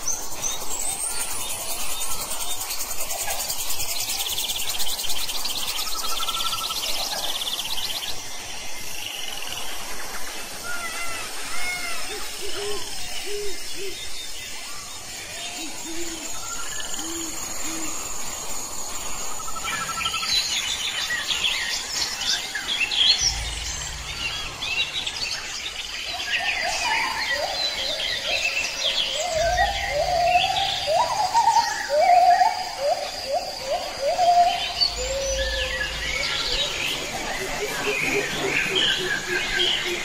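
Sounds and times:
upward-sliding bird notes: 23.1s - 25.9s.

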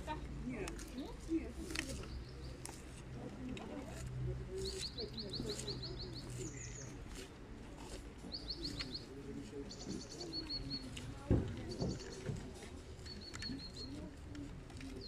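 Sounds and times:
murmur of distant voices: 0.0s - 15.0s
small bird singing: 4.6s - 7.0s, 8.2s - 12.4s, 13.0s - 14.1s.

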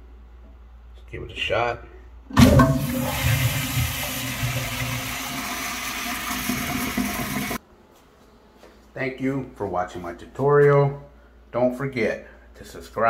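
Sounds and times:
toilet flushing: 2.3s - 7.6s.

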